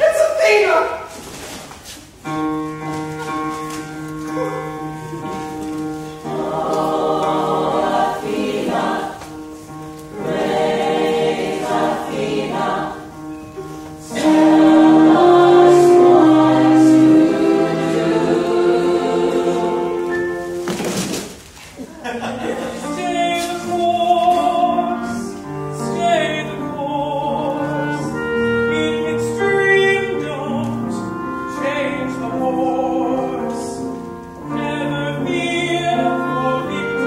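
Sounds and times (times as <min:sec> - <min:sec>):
choir singing held chords: 0:04.4 - 0:20.8.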